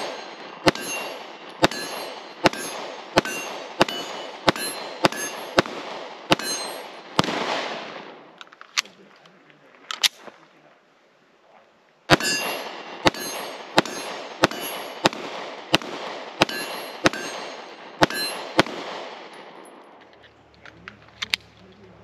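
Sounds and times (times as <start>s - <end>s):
pistol shots echoing: 0.0s - 8.3s, 12.1s - 19.9s.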